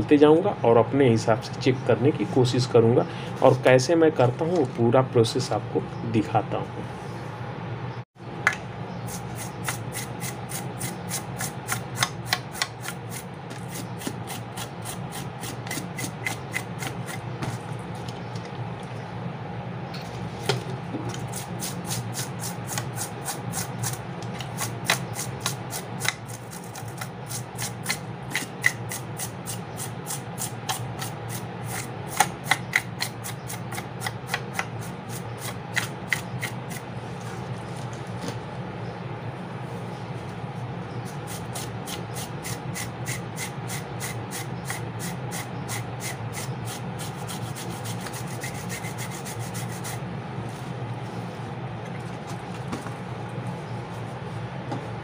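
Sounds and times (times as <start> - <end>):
brush scrubbing circuit board: 41.2 - 50.0.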